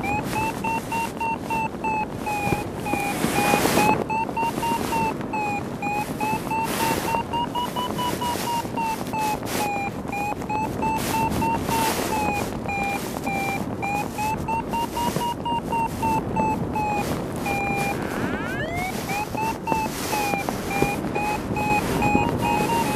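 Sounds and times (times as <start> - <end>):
variometer short quick beeps: 0.0 - 22.9
wind on microphone: 0.0 - 22.9.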